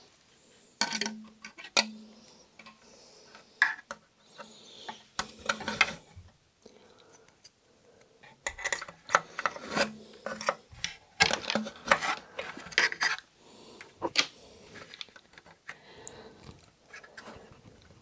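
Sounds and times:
hands scraping metal and plastic: 0.8s - 6.2s, 8.2s - 15.8s.

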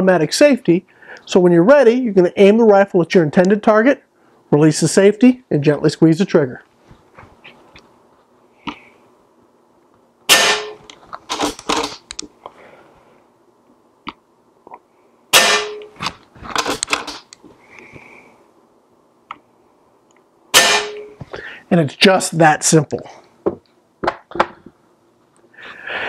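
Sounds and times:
air rifle shot: 10.3s - 10.8s, 15.3s - 15.9s, 20.5s - 21.1s.

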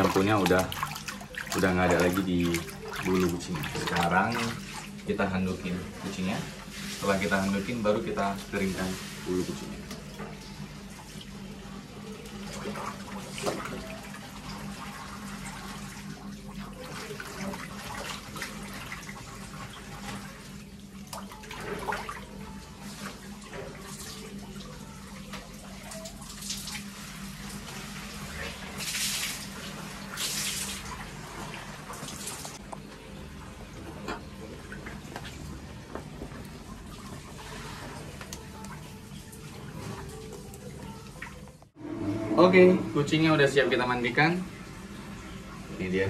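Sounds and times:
low hum: 32.6s - 45.8s.

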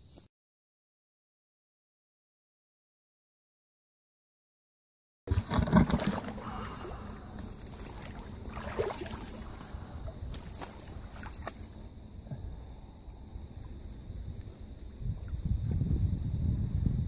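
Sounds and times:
water splashing and sloshing: 5.3s - 15.5s.

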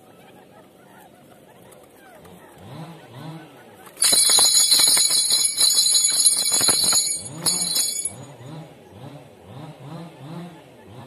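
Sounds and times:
shimmering jingle with rattle: 4.0s - 8.4s.

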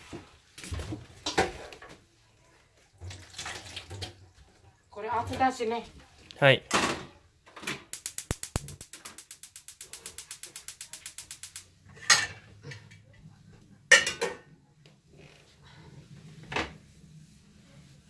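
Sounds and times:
gas stove igniter clicking: 7.9s - 11.7s.

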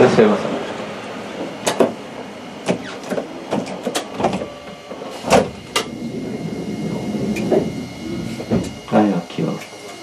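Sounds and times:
sharp clicks and knocks: 1.6s - 2.0s.

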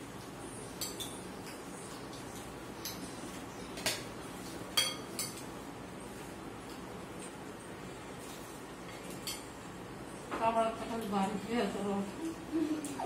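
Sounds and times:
spoons and dishes clinking: 4.7s - 5.5s.

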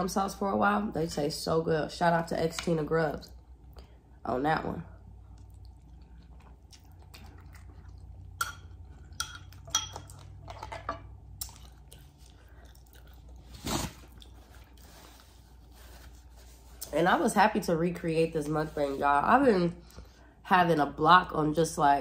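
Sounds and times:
chewing food: 4.9s - 10.6s, 11.3s - 15.4s
paper towel rustle: 13.5s - 17.3s.

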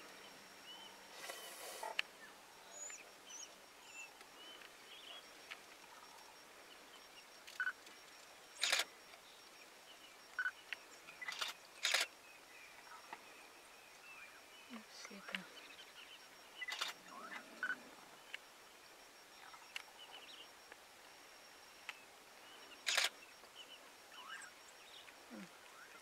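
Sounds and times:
short bursts of noise: 7.4s - 9.0s, 11.2s - 12.2s, 16.3s - 19.9s, 22.7s - 23.4s.

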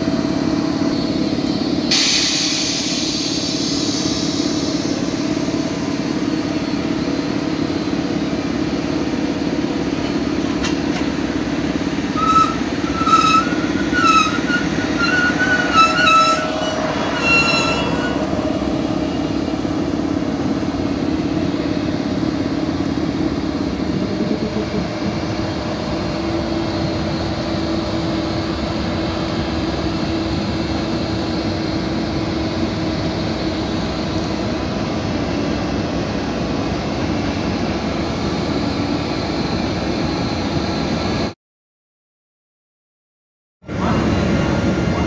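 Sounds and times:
electric locomotive running: 0.0s - 41.3s, 43.7s - 45.0s
brief high squeal: 12.2s - 18.3s.

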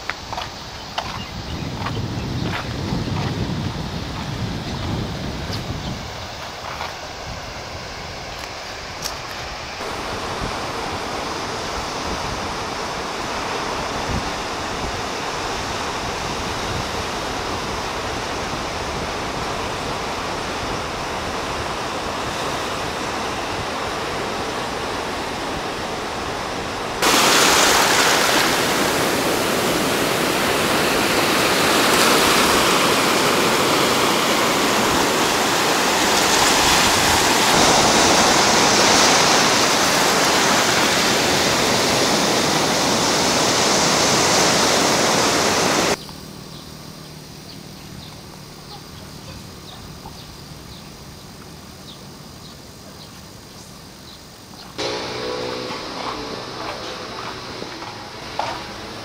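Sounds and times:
surf washing onto pebble beach: 1.9s - 46.0s
water running over pebbles: 27.0s - 42.1s.

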